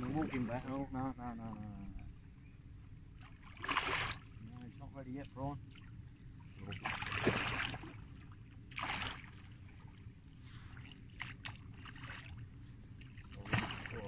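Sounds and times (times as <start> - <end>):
fish splashing in water: 3.2 - 4.3, 6.7 - 8.0, 8.7 - 9.9, 13.0 - 14.0.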